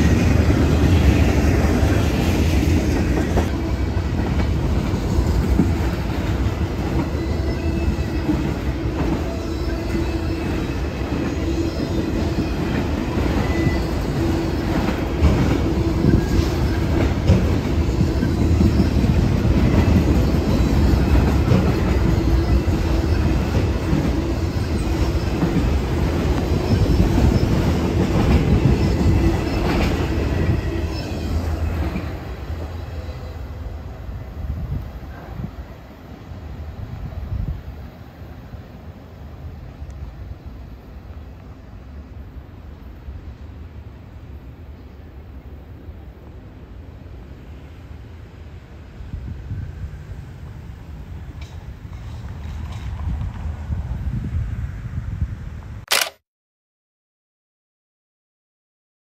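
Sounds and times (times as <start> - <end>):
train wheel squeal: 0.0 - 35.8
freight train wheels rumbling and rattling: 0.0 - 37.8, 46.3 - 54.7.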